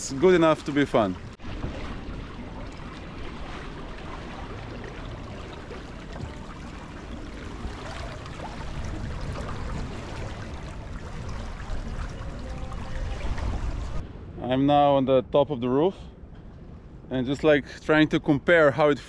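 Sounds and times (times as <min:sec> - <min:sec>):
water swishing along hulls: 0:00.0 - 0:14.4
low rumble: 0:01.2 - 0:17.3.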